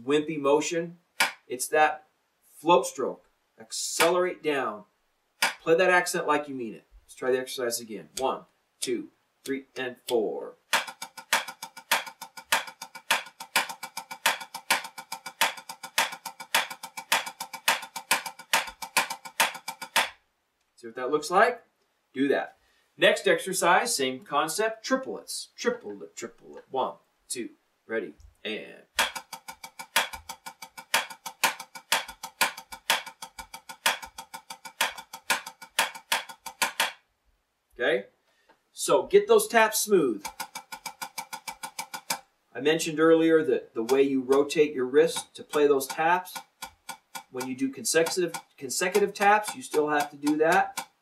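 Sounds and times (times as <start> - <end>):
drumsticks on practice pad: 1.2 - 1.5, 5.4 - 5.6, 9.4 - 20.2, 29.0 - 37.0, 40.1 - 42.2, 43.8 - 51.0.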